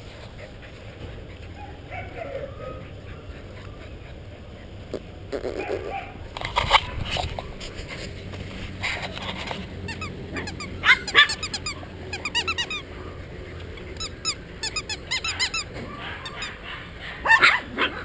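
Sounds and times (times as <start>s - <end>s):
puppies yipping and squealing: 0.1s - 18.0s
puppy yelps: 5.5s - 6.2s, 9.9s - 13.2s, 13.8s - 18.0s.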